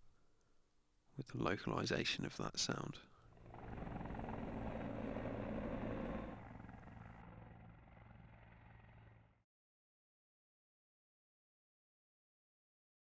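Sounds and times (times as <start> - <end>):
helicopter: 3.2 - 9.5.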